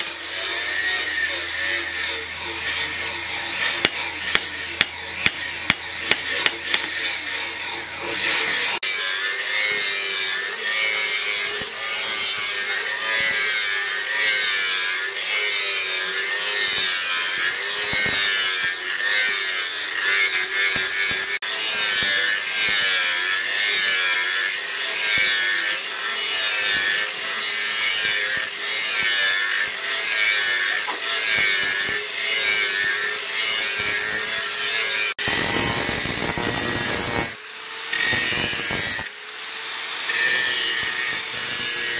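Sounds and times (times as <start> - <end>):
angle grinder grinding steel: 0.0 - 41.9
hammer blows on steel anvil: 3.6 - 7.2.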